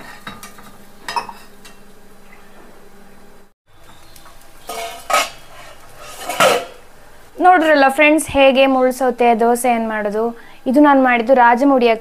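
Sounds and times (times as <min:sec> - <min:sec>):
metal utensil scraping iron pan: 0:04.6 - 0:06.9.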